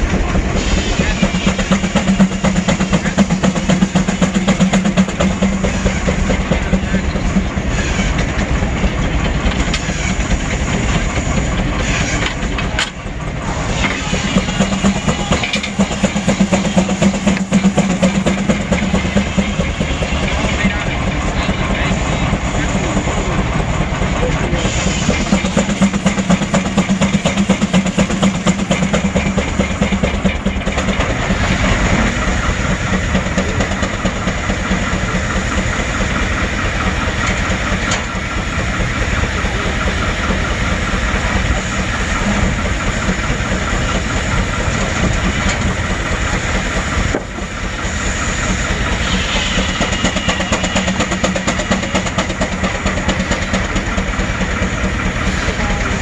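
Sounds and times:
belted sawmill: 0.0 - 56.0
steam engine exhaust beat: 0.0 - 56.0.

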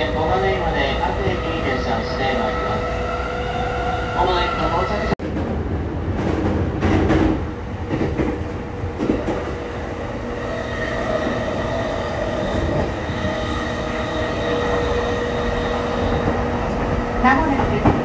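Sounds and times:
train wheels rumbling on track: 0.0 - 18.0.

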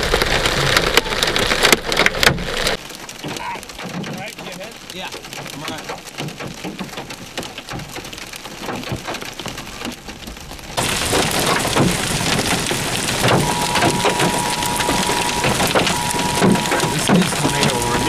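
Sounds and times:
heavy rain and hail pelting: 0.0 - 18.0
steady electronic tone: 13.0 - 18.0.

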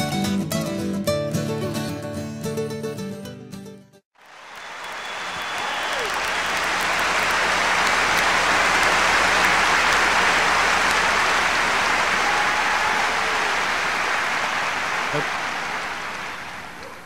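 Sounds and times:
audience applauding: 4.2 - 17.0.

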